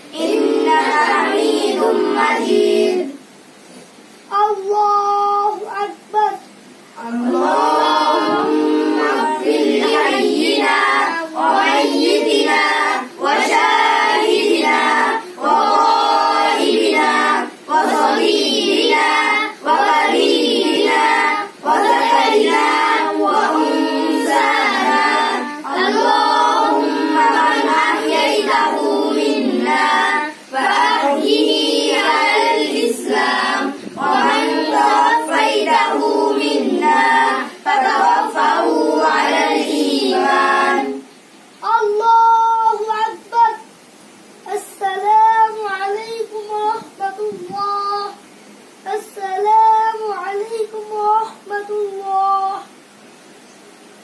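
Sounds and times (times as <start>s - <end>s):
child chanting melodically: 0.0s - 3.3s, 4.3s - 43.7s, 44.4s - 52.8s.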